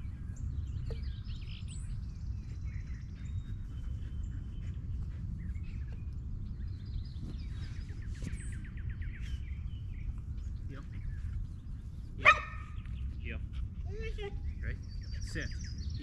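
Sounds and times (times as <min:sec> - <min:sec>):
birds chirping: 0:00.0 - 0:16.0
steady low rumble: 0:00.0 - 0:16.0.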